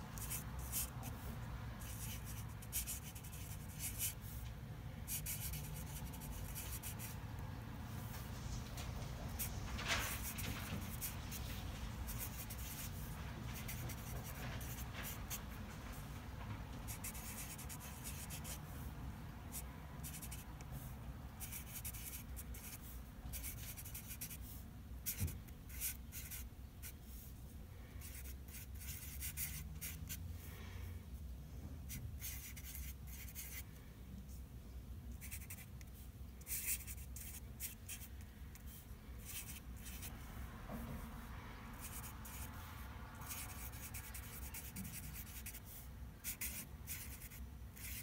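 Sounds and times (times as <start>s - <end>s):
marker scratching on paper: 0.0s - 4.4s, 5.1s - 7.2s, 9.3s - 16.1s, 16.8s - 18.7s, 19.5s - 27.3s, 28.0s - 30.2s, 31.9s - 33.6s, 35.1s - 40.3s, 41.8s - 48.0s
low room hum: 0.0s - 48.0s.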